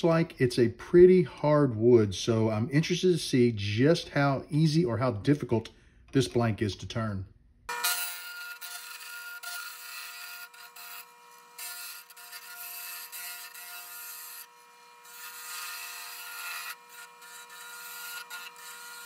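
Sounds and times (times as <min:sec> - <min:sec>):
lathe motor hum: 0:07.7 - 0:19.0
chisel scraping wood: 0:07.9 - 0:19.0.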